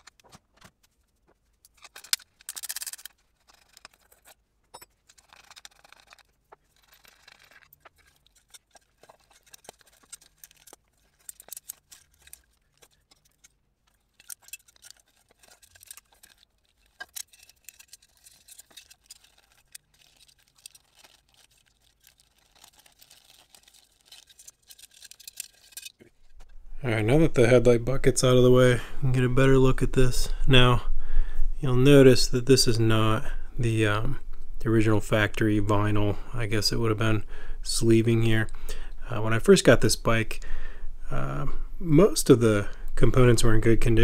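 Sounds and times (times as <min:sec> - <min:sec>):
hand tools clicking and tapping: 0:01.6 - 0:21.1
small metal parts handled: 0:01.6 - 0:26.6.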